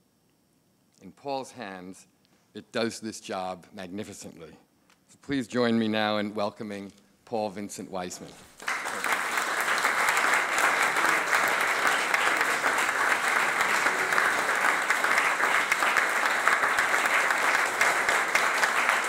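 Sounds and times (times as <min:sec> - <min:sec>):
audience applauding: 0:08.6 - 0:19.0.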